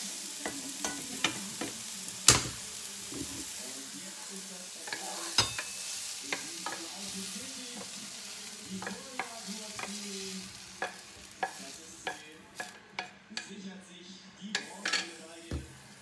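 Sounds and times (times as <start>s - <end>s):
pan sizzling: 0.0s - 13.6s, 14.4s - 16.0s
wooden spatula scraping pan: 3.0s - 3.6s.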